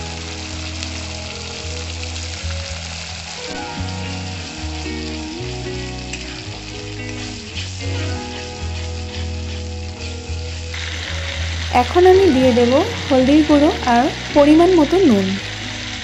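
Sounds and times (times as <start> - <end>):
background music: 0.0 - 16.0
spices sizzling in hot oil: 0.0 - 16.0
spatula stirring in pan: 6.2 - 14.4.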